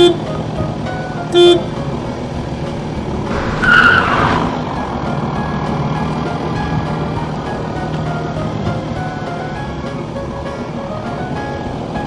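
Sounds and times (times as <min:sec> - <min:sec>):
truck horn toots: 0:00.0 - 0:00.4, 0:01.2 - 0:01.8
truck engine running: 0:00.0 - 0:12.0.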